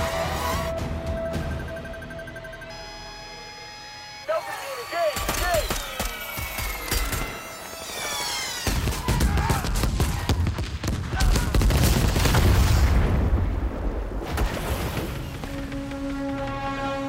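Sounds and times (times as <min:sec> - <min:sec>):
rapid barrage of explosions: 0:05.1 - 0:15.4.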